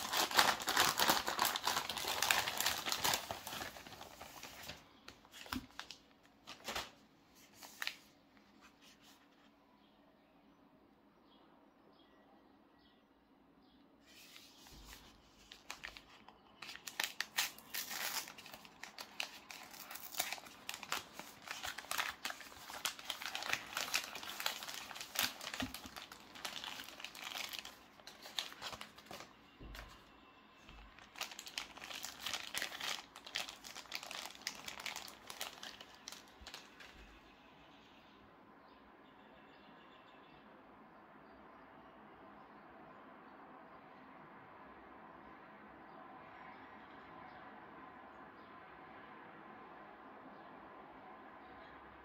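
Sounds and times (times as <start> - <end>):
plastic sleeve crinkling: 0.0 - 8.1, 14.1 - 30.1, 30.7 - 37.2
paper crinkling and rustling: 0.0 - 9.5, 14.0 - 37.2.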